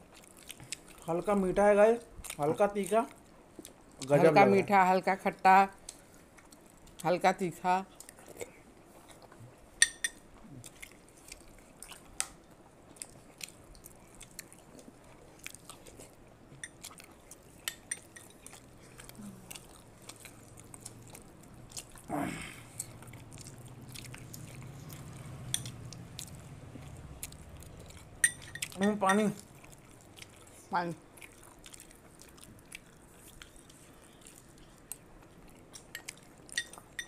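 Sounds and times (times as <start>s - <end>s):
chewing crunchy snacks: 0.0s - 1.4s, 7.9s - 9.5s, 10.3s - 37.0s.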